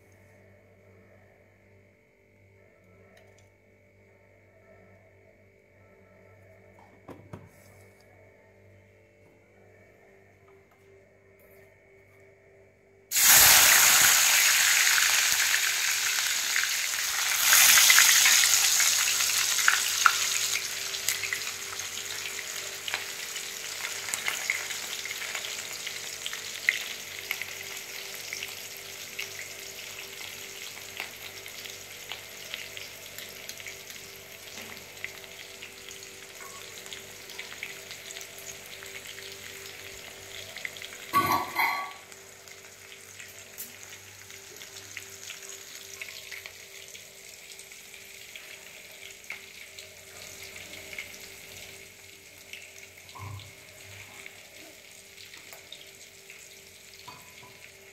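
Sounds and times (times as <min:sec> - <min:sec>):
frying crackles and pops: 0:13.1 - 0:57.9
onion sizzling in hot oil: 0:13.1 - 0:57.9.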